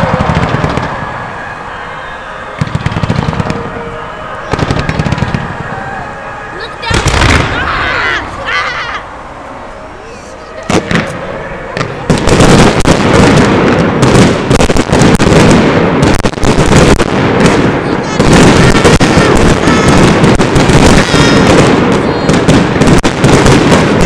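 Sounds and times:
fireworks bangs and crackling: 0.0 - 9.0, 10.4 - 24.0
fireworks whistling: 0.0 - 24.0.

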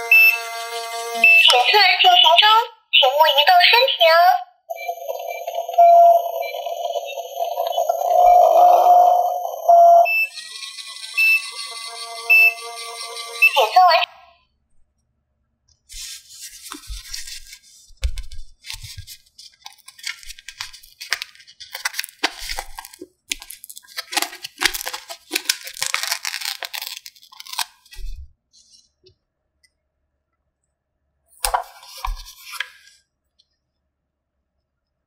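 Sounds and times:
packaging tearing: 18.2 - 28.1.

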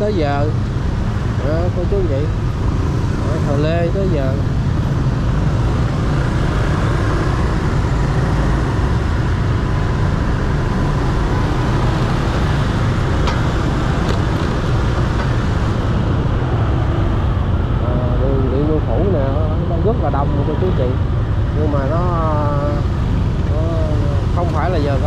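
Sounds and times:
traffic rumble of engines: 0.0 - 25.0.

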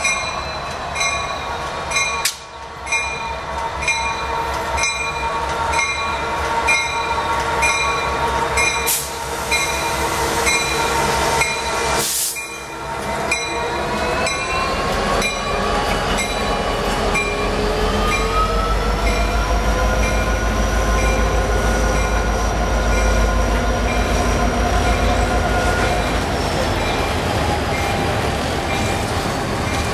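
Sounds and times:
crossing bell ringing: 0.0 - 8.9, 9.5 - 11.8, 12.4 - 15.6
diesel locomotive passing: 0.0 - 29.9.

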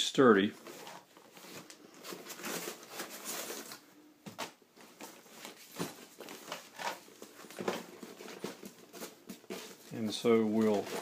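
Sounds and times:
fabric bag rustling: 4.8 - 11.0.

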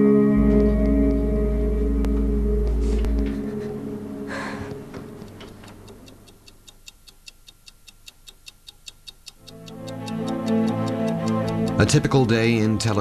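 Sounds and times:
music: 0.0 - 4.7, 9.5 - 13.0
clock ticking: 2.0 - 13.0.

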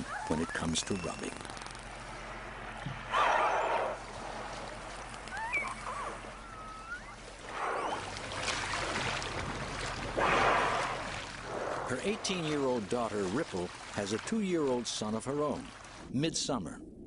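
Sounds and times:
water rushing: 0.0 - 16.2
killer whale whistles: 5.3 - 8.0.

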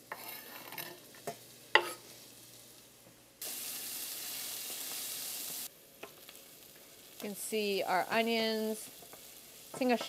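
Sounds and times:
onions sizzling in hot oil: 0.0 - 10.0
knife scraping wooden cutting board: 0.1 - 1.0.

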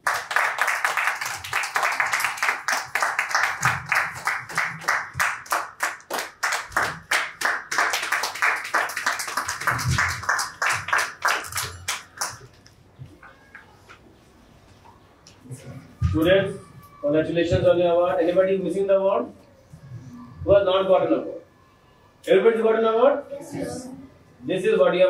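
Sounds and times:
fast rhythmic clapping: 0.0 - 12.6.

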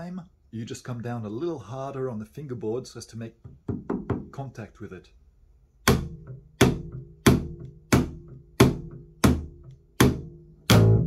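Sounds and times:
slapped double bass: 10.0 - 11.0.

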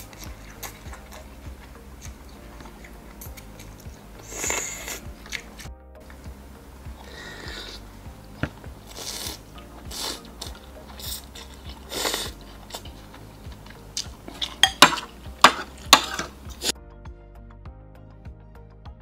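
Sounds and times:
noodles slurped: 0.0 - 5.7, 7.0 - 7.9, 8.8 - 16.7
cutlery clinking on glass bowl: 14.3 - 16.4.

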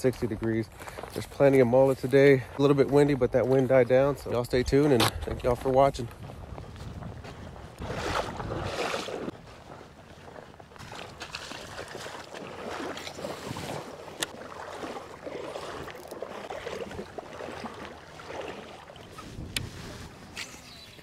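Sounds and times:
water sloshing around wading legs: 7.5 - 20.7.

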